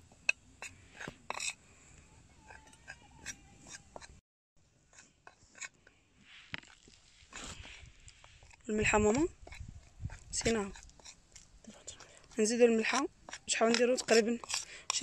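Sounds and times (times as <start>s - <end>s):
metal spoon scraping glass plate: 0.6s - 1.6s, 2.4s - 4.2s, 12.7s - 15.0s.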